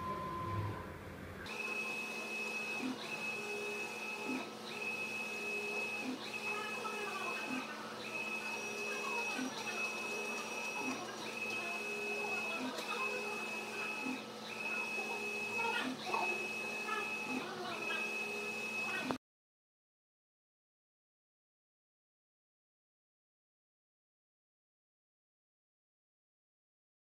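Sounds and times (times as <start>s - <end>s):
printer carriage whine: 0.0s - 19.2s.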